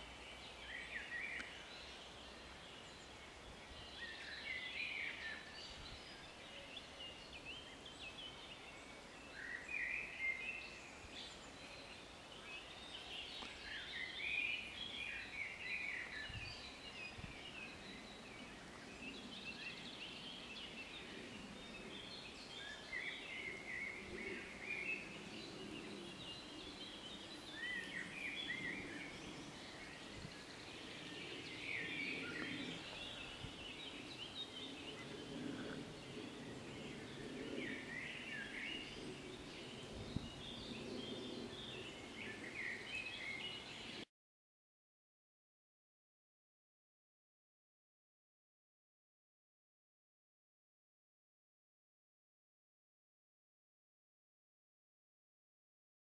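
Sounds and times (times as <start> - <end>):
songbirds warbling: 0.0 - 44.0.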